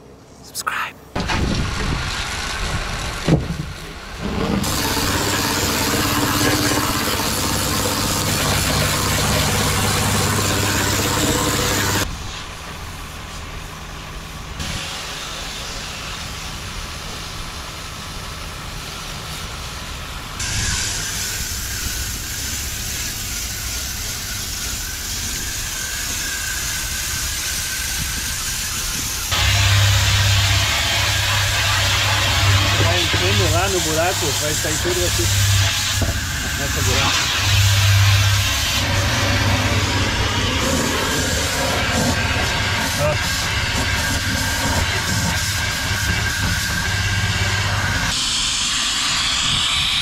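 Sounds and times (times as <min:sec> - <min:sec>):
pressure washer motor humming: 0:01.8 - 0:12.1, 0:19.9 - 0:48.6
water jet hissing: 0:03.8 - 0:12.4, 0:14.6 - 0:50.0.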